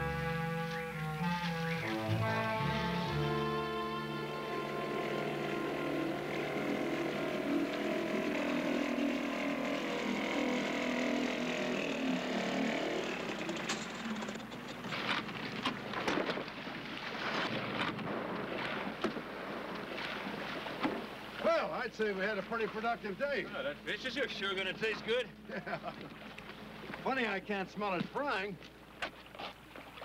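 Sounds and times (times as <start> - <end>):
outboard motor running: 0.0 - 30.0
boat knocking against wooden float: 17.4 - 21.2.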